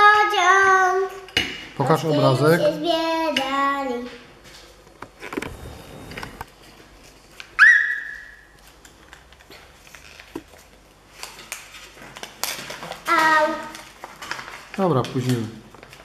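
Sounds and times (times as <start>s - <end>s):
high whistle-like tone: 7.6s - 8.4s
foil wrapper crinkling: 8.4s - 16.0s.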